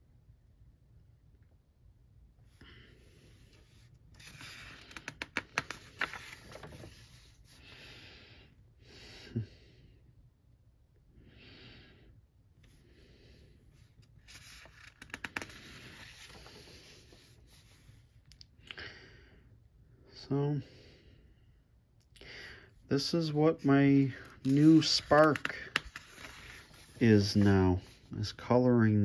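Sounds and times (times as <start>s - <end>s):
paper pages rustling and turning: 3.5s - 7.5s, 13.8s - 18.0s, 24.0s - 28.3s.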